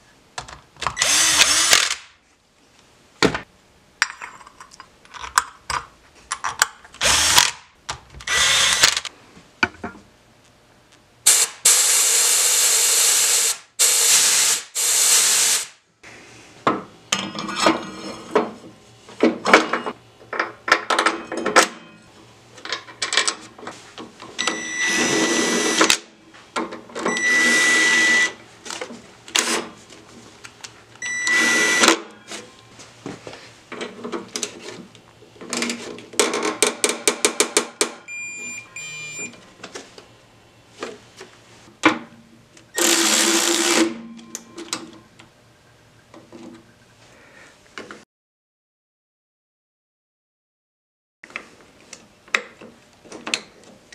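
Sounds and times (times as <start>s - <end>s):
cordless power driver whining: 7.0s - 7.6s, 8.2s - 9.1s, 31.1s - 32.2s, 42.7s - 43.9s.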